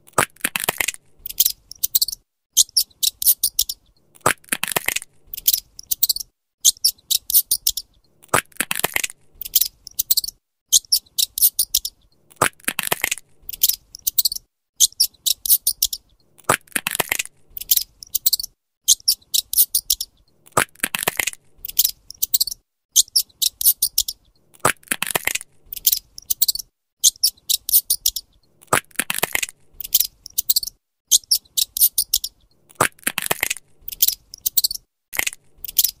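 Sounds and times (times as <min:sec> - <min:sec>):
squirrel gnawing a nut: 0:15.2 - 0:22.6, 0:27.2 - 0:30.7, 0:31.3 - 0:36.0.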